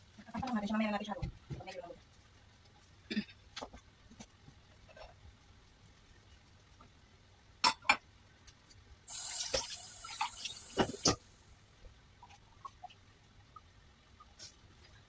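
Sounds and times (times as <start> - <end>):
tap water running: 9.1 - 11.2.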